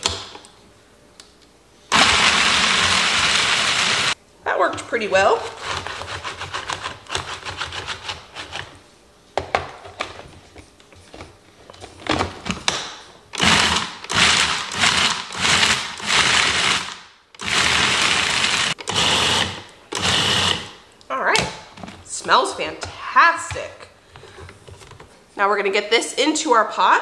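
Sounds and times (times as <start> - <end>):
food processor running: 1.9 - 4.2, 13.4 - 20.8.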